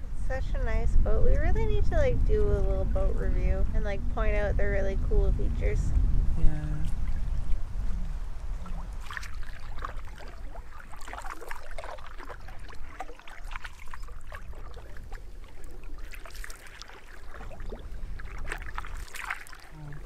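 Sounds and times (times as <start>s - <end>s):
low rumble: 0.0s - 10.8s
water lapping at hull: 0.2s - 5.8s, 6.7s - 20.0s
paddle splashing water: 6.8s - 20.0s.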